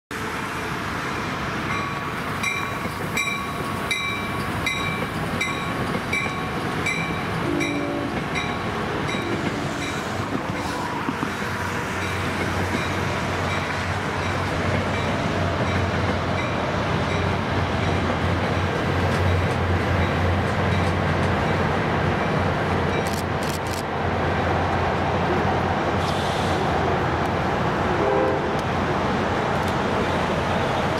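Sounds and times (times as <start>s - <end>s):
low locomotive drone: 0.1s - 30.9s
train rolling past: 0.1s - 30.9s
train bell ringing: 1.7s - 10.8s.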